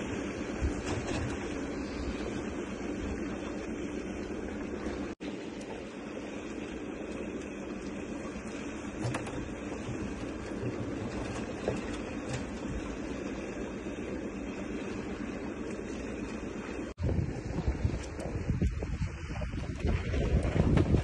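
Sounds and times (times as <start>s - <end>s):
knocks and splashes of fish net: 0.0s - 2.5s, 8.0s - 13.2s, 17.2s - 21.0s
water: 0.0s - 21.0s
wind: 0.0s - 21.0s.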